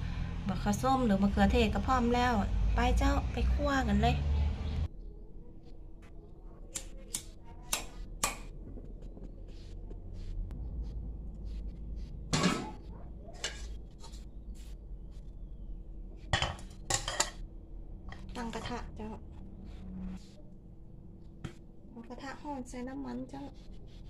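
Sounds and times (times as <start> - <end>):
low steady burner noise: 11.2 - 24.0
metal wok clattering: 13.4 - 13.8, 16.3 - 17.4.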